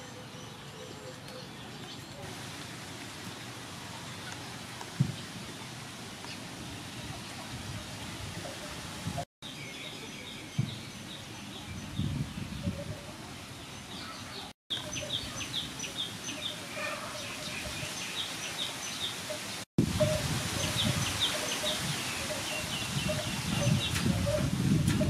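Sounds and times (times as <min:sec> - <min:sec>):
birds chirping: 0:09.4 - 0:24.5.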